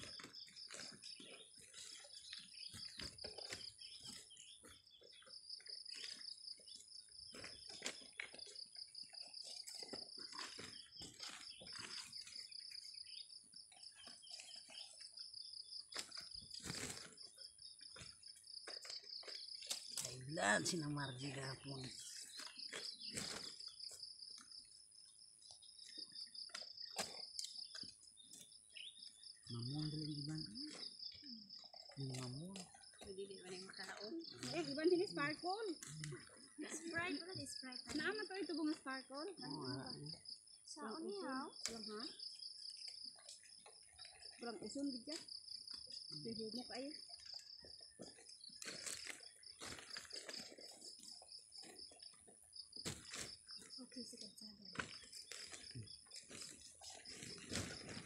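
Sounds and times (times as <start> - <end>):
insects chirping trill: 0.0 - 58.0.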